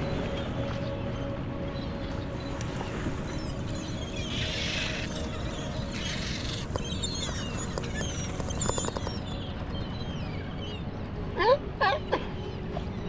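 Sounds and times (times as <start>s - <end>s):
wind and water rushing: 0.0s - 8.6s.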